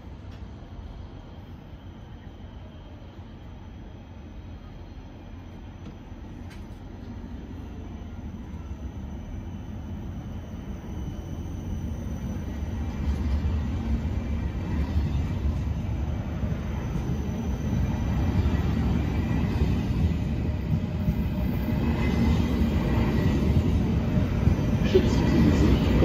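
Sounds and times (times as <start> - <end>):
train wheels rumbling on rails: 0.0 - 26.0
faint high whine: 0.1 - 26.0.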